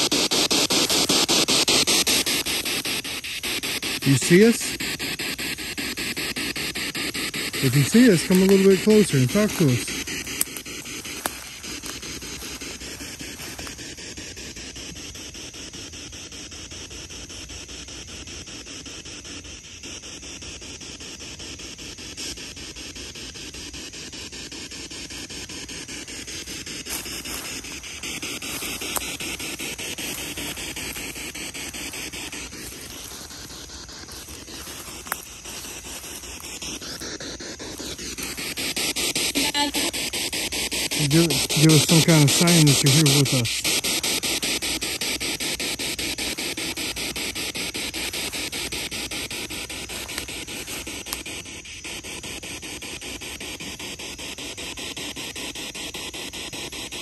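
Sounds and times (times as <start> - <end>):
pulsing radio static: 0.0 - 57.0
sharp clicks: 7.0 - 13.4.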